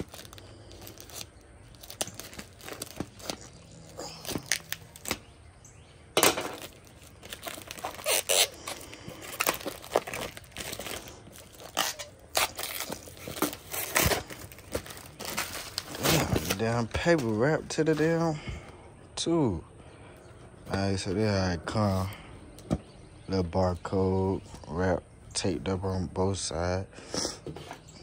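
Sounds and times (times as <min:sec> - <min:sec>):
plastic mailer tearing and crinkling: 0:00.0 - 0:05.3, 0:06.2 - 0:18.0.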